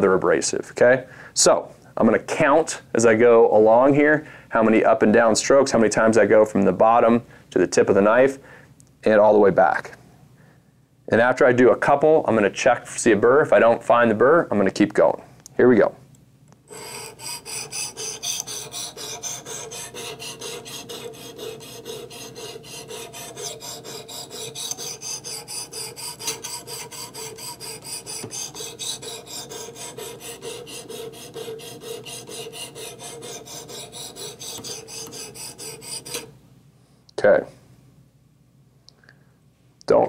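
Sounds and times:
knife sharpener rasping on steel: 0:16.7 - 0:36.3.

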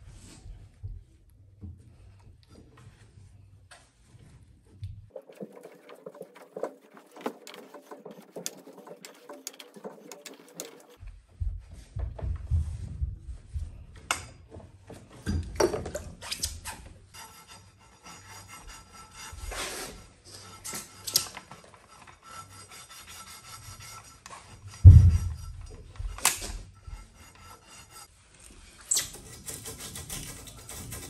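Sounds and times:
gloved hands scraping pipe fitting: 0:05.3 - 0:11.0, 0:17.2 - 0:28.1, 0:28.8 - 0:31.0
heavy thump: 0:24.8 - 0:25.6.

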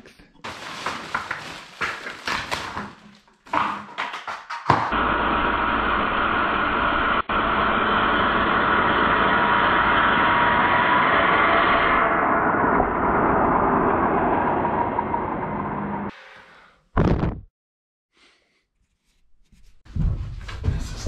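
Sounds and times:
wood knocking and clattering: 0:01.0 - 0:04.9
circular saw cutting wood: 0:04.9 - 0:16.4.

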